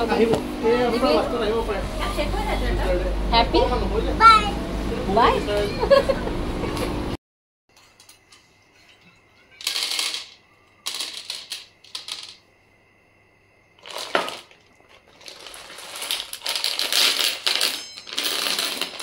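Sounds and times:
pebbles rattling in plastic bag: 13.8s - 19.0s.

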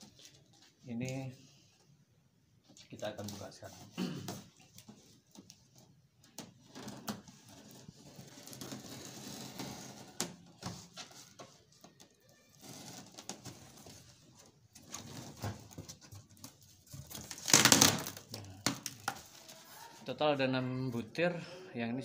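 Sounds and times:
knife scraping through tape: 7.4s - 10.2s.

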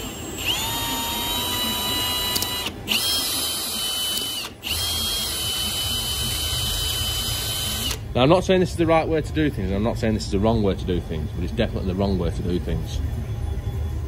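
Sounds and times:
cordless drill motor whining: 0.0s - 8.0s.

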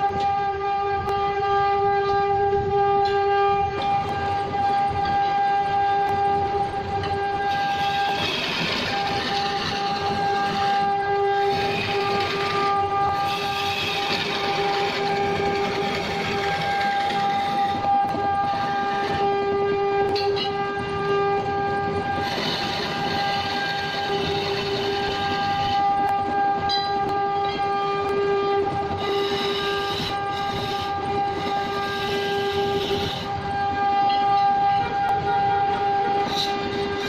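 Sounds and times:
wood lathe motor whine: 3.7s - 37.0s
turning tool scraping wood: 7.4s - 19.2s, 28.9s - 33.4s, 35.9s - 37.0s.

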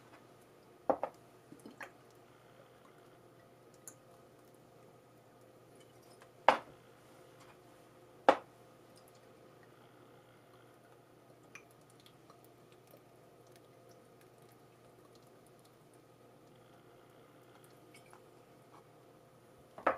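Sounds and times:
water dripping and squishing: 0.4s - 2.3s, 2.9s - 6.4s, 8.8s - 9.8s, 10.6s - 16.6s.

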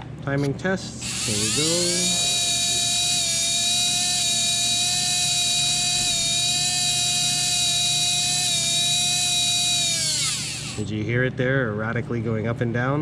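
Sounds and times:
electric motor high-pitched whine: 1.0s - 10.9s.

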